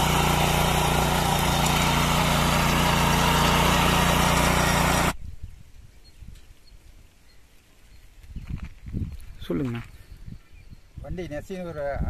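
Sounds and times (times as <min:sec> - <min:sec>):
power weeder engine running: 0:00.0 - 0:05.2
tines tilling soil: 0:00.0 - 0:05.2.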